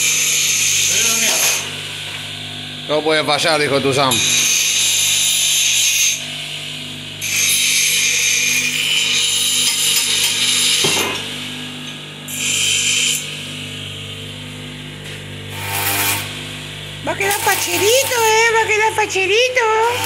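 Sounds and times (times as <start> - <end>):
bench grinder motor running: 0.0 - 20.0
steel grinding on wheel: 15.5 - 16.4, 17.0 - 18.7, 19.7 - 20.0.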